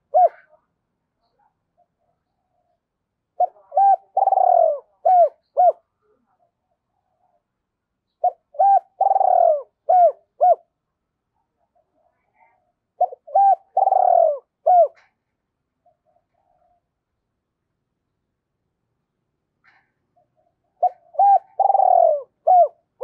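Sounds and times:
dove cooing: 0:00.0 - 0:00.6, 0:03.4 - 0:05.8, 0:08.2 - 0:10.7, 0:13.0 - 0:15.2, 0:19.7 - 0:23.0.

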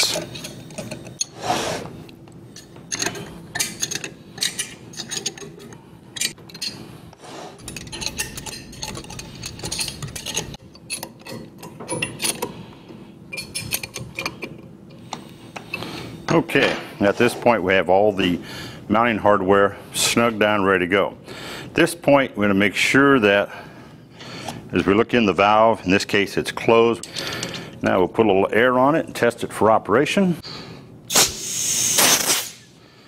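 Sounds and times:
wrench metal clicks and scrapes: 0:02.6 - 0:06.8, 0:07.6 - 0:12.5, 0:13.3 - 0:15.9.

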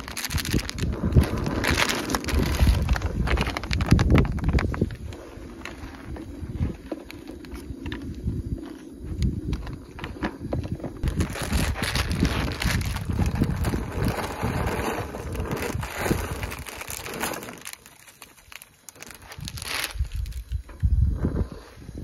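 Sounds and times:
plastic packet crinkling: 0:00.0 - 0:06.1, 0:11.0 - 0:20.6
wind buffeting microphone: 0:00.0 - 0:17.8, 0:19.0 - 0:22.0.

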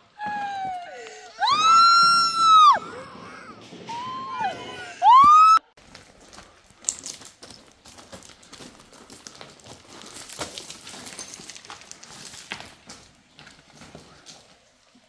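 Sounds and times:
footsteps crunching on gravel: 0:05.8 - 0:15.0.

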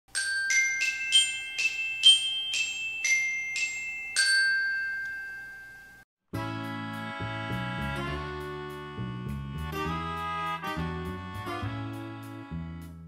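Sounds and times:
glockenspiel-like chime jingle: 0:00.1 - 0:06.1.

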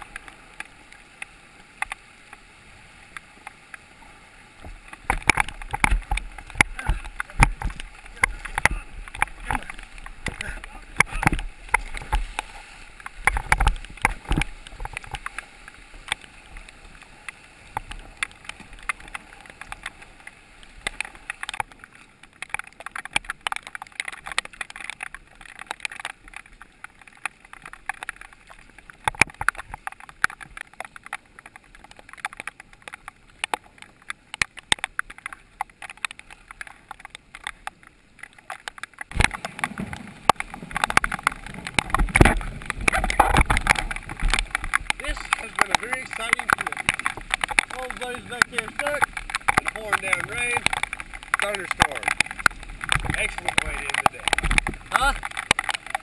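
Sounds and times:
paddle strokes splashing: 0:00.0 - 0:56.0
water drops tapping on plastic: 0:04.6 - 0:15.4, 0:22.4 - 0:56.0.

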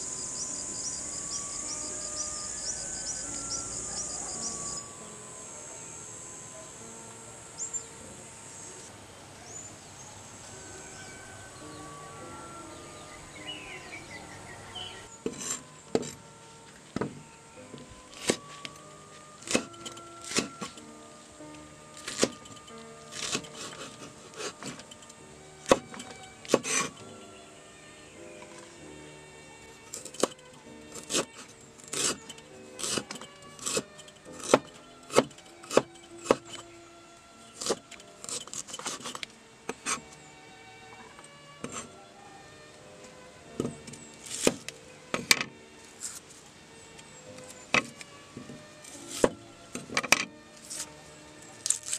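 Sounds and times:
bird chirps: 0:00.0 - 0:06.8, 0:07.5 - 0:15.2
insects: 0:00.0 - 0:41.4
cleaver chopping on wooden board: 0:15.2 - 0:16.2, 0:19.4 - 0:20.8, 0:22.0 - 0:22.5, 0:23.1 - 0:24.8, 0:25.6 - 0:27.0, 0:29.9 - 0:36.6, 0:37.6 - 0:39.1, 0:43.6 - 0:45.5, 0:47.7 - 0:49.4.

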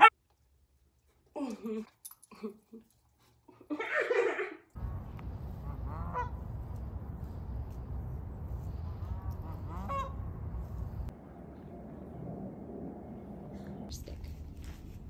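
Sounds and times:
woman laughing: 0:03.5 - 0:04.7
wind rumble on microphone: 0:04.8 - 0:13.8
goose honk: 0:05.5 - 0:06.4, 0:09.1 - 0:10.4.

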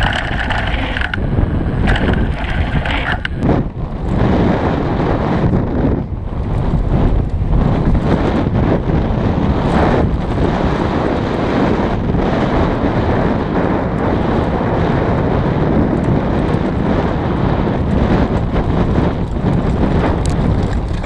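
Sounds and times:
tyres rumbling over dirt: 0:00.0 - 0:03.6, 0:16.8 - 0:21.0
bike rattling: 0:00.0 - 0:21.0
wind buffeting microphone: 0:00.0 - 0:21.0.

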